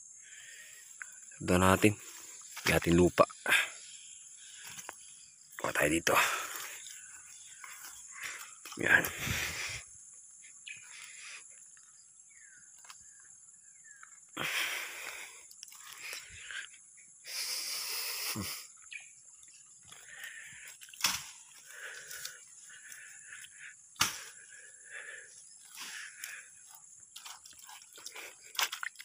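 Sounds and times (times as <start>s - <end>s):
hands pressing wet soil: 25.6s - 29.0s.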